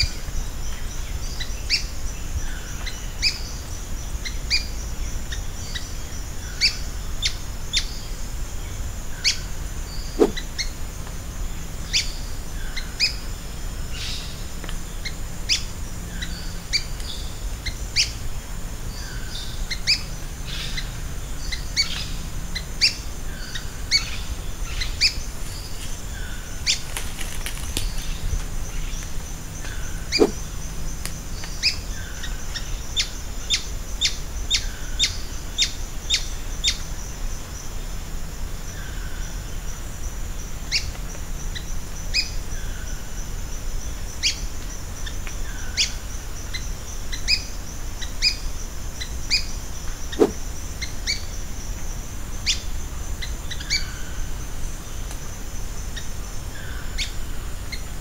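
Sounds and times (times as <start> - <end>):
birds chirping: 0.0 - 11.1, 11.8 - 36.8, 44.2 - 51.4.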